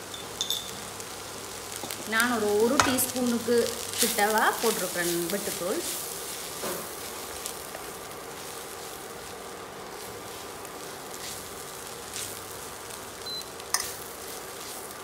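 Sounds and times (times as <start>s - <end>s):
food sizzling in pan: 0.0s - 15.0s
wooden spatula scraping pan: 3.9s - 10.5s.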